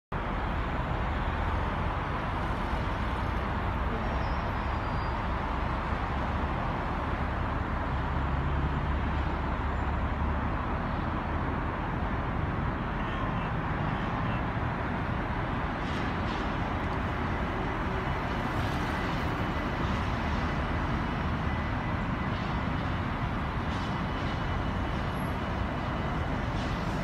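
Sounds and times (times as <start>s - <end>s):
road traffic: 0.1s - 27.0s.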